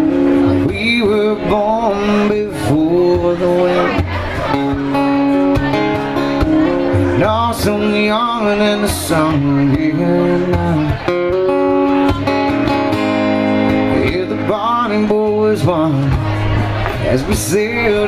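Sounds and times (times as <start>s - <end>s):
man singing into a microphone: 0.0s - 13.0s, 13.6s - 18.0s
acoustic guitar: 0.0s - 18.0s.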